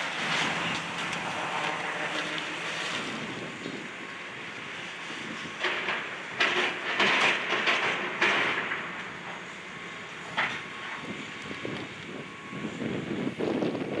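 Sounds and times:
debris crashing and scraping: 0:00.0 - 0:03.8, 0:05.4 - 0:09.1
excavator mechanical din: 0:00.0 - 0:14.0.

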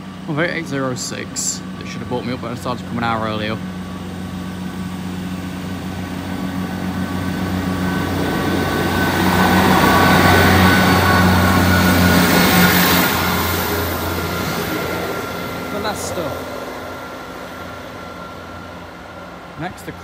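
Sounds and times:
diesel train engine humming: 0:00.0 - 0:20.0
train wheels rumbling on rail: 0:00.0 - 0:20.0.

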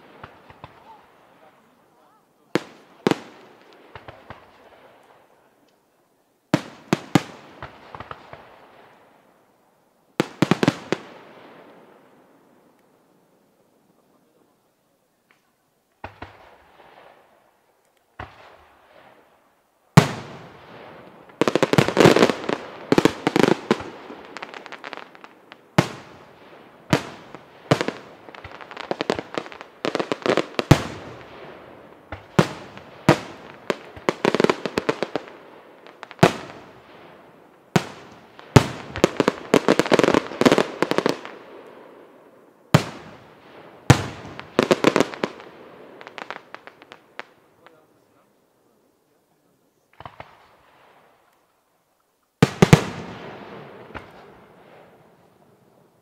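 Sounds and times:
firework crackling: 0:00.0 - 0:05.8, 0:06.5 - 0:09.5, 0:15.2 - 0:51.5, 0:52.4 - 0:56.0
firework bangs: 0:02.5 - 0:05.0, 0:06.6 - 0:09.0, 0:16.0 - 0:17.3, 0:19.9 - 0:42.1, 0:42.7 - 0:47.9, 0:49.9 - 0:51.1, 0:52.4 - 0:55.2.

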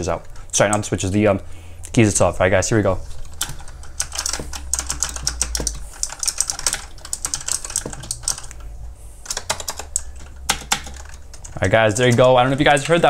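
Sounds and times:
fast keyboard typing clicks: 0:03.1 - 0:13.0.

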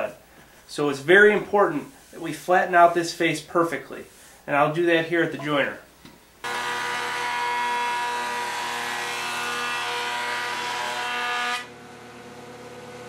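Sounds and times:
wood cutting noise: 0:06.4 - 0:12.2.

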